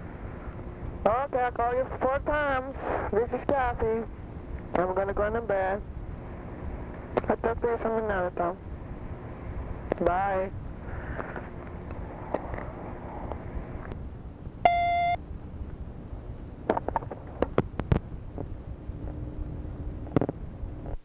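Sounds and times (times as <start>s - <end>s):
tape and phone-line hiss: 0.0s - 14.0s
answering machine beep: 14.6s - 15.2s.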